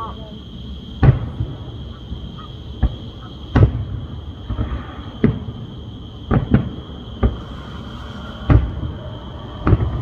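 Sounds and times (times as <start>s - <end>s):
firework shells booming: 0.9s - 10.0s.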